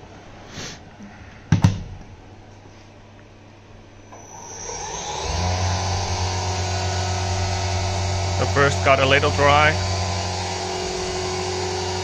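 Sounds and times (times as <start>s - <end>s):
machine hum: 3.8s - 12.0s.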